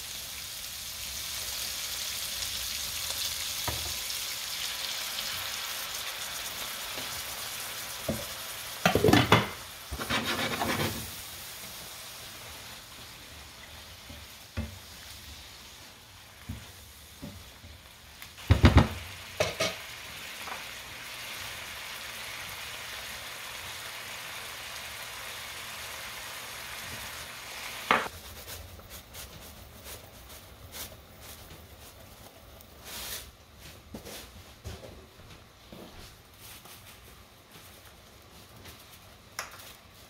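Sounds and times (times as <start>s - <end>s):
food sizzling in oil: 0.0s - 28.9s
loud knocks on pan: 18.4s - 19.8s.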